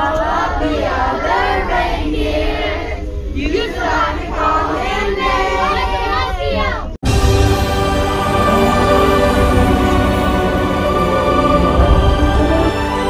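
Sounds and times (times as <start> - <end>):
group singing: 0.0 - 6.2, 7.7 - 13.0
backing music: 7.0 - 13.0.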